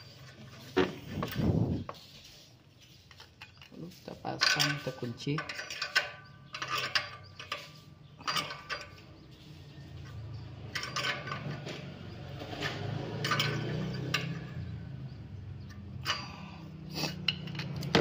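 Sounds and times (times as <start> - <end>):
spanner clicking on metal: 4.4 - 9.3, 10.0 - 18.0.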